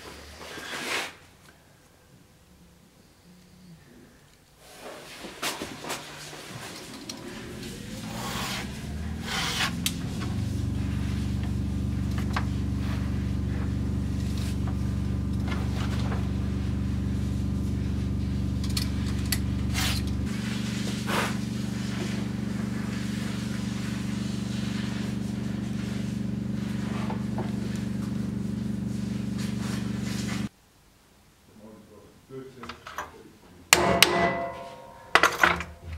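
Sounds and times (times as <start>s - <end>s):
electric motor humming: 7.0s - 30.5s.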